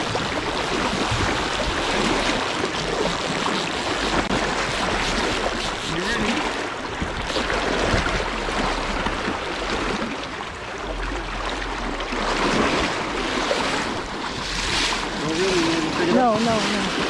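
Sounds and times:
fish splashing at surface: 0:00.0 - 0:10.2
river current rushing: 0:00.0 - 0:17.0.

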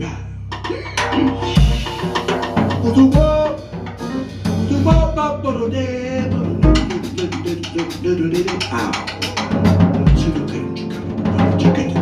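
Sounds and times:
jazz band playing: 0:00.5 - 0:12.0
deep low drum hits: 0:00.6 - 0:05.5, 0:06.2 - 0:12.0
man singing long notes: 0:02.8 - 0:03.7.

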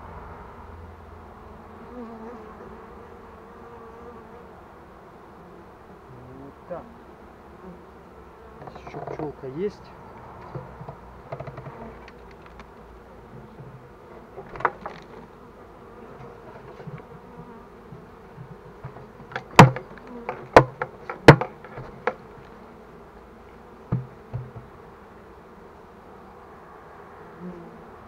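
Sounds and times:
honeybees buzzing: 0:00.0 - 0:28.0
sharp knocks: 0:18.0 - 0:22.2, 0:23.9 - 0:24.7.

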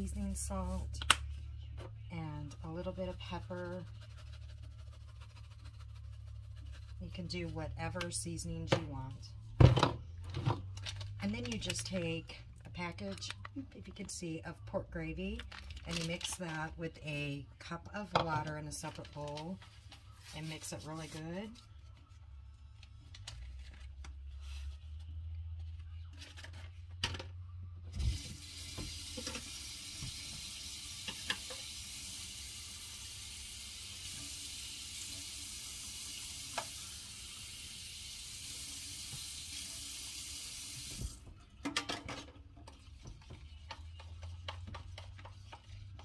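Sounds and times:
kitchen tap running: 0:28.0 - 0:41.2.

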